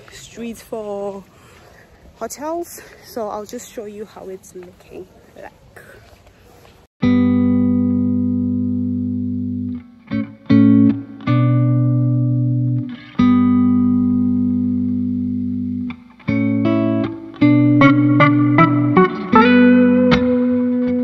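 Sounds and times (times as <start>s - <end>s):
guitar chords ringing: 7.0s - 21.0s.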